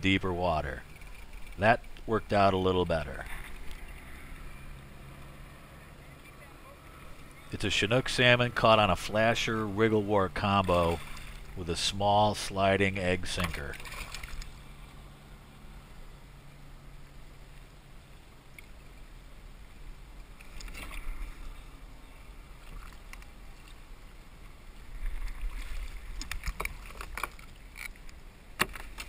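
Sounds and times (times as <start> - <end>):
fish splashing at the surface: 13.4 - 14.6.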